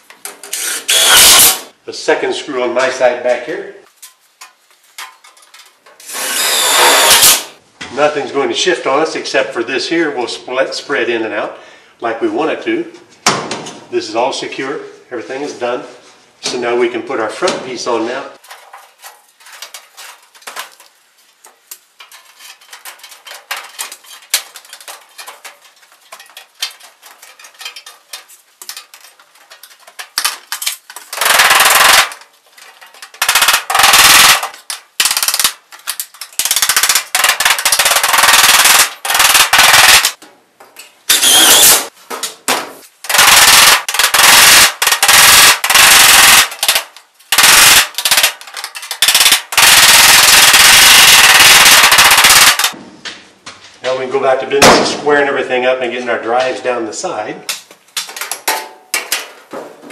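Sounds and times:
sheet metal rattling: 21.9 - 40.2.

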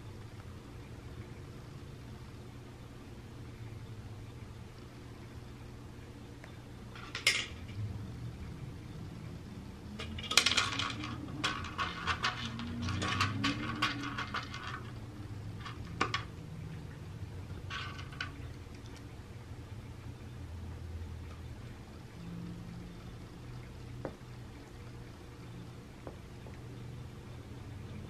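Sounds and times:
kibble clattering against plastic: 10.0 - 16.3, 17.6 - 18.6.

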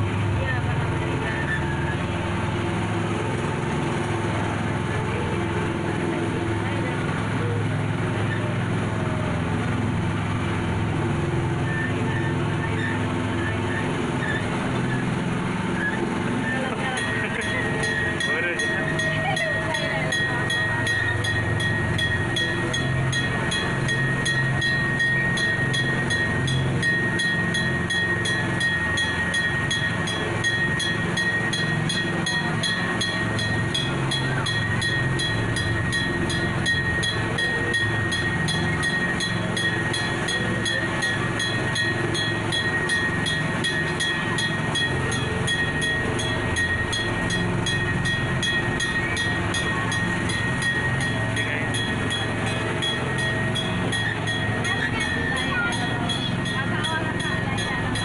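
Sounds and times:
ride train rumbling: 0.0 - 58.0
high whine: 12.2 - 58.0.

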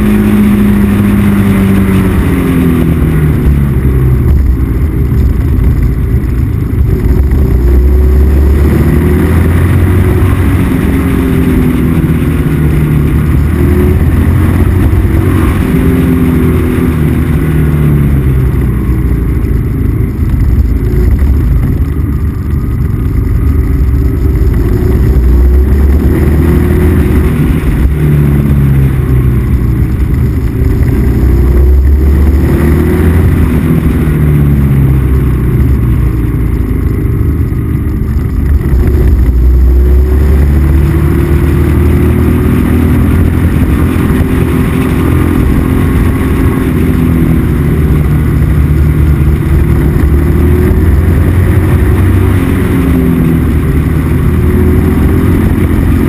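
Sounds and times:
motorcycle engine revving: 0.0 - 56.0
wind rumble on microphone: 0.0 - 56.0.

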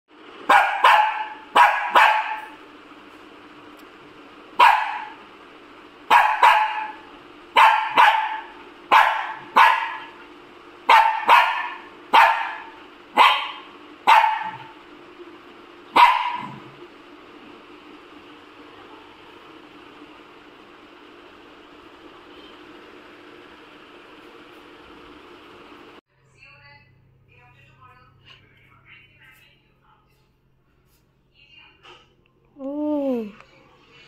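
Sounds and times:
small dog barking: 0.4 - 2.6, 4.6 - 5.2, 6.1 - 10.2, 10.8 - 14.8, 15.9 - 16.7.

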